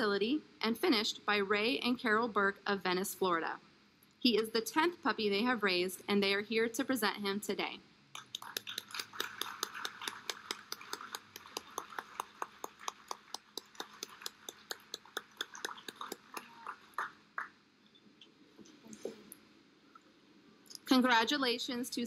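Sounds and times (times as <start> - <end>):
audience applauding: 8.2 - 17.5.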